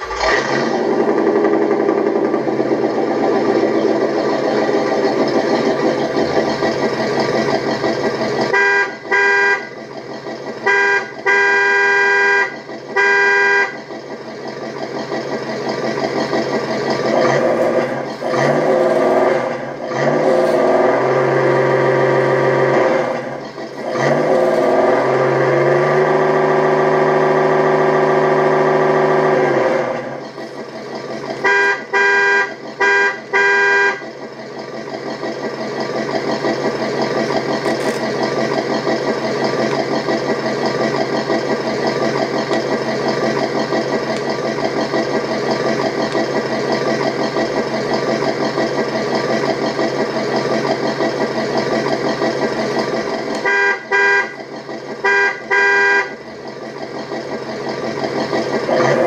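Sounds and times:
simulated engine idling: 0.0s - 59.0s
simulated horn honks: 8.4s - 9.9s, 10.5s - 14.0s, 31.2s - 34.2s, 53.3s - 56.3s.

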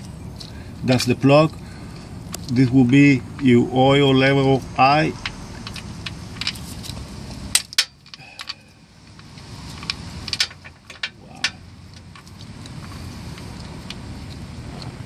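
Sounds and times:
steady low hum: 0.0s - 15.0s
metal parts and tools clinking: 4.8s - 8.7s, 9.7s - 12.4s.

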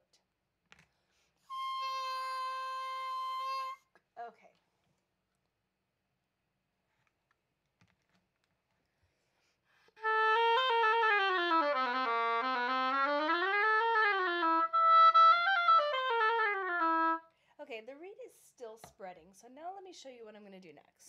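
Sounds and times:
oboe playing: 1.5s - 3.9s, 10.0s - 17.3s.

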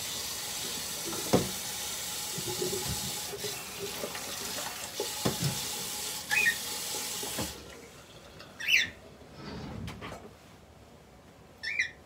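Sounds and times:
tap running into sink: 0.6s - 7.9s
cockatiel chirping: 6.3s - 6.6s, 8.6s - 8.9s, 11.6s - 12.0s.

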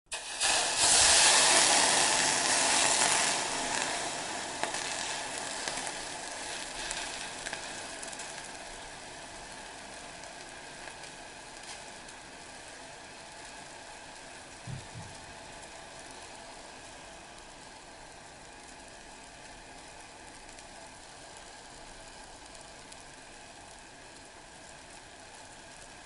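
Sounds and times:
water sizzling on hot plate: 0.1s - 26.0s
small crackles: 0.4s - 26.0s.

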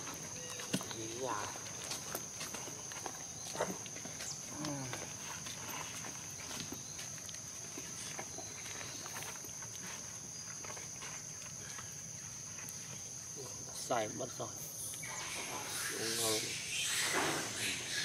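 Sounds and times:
insect chorus: 0.0s - 18.0s.

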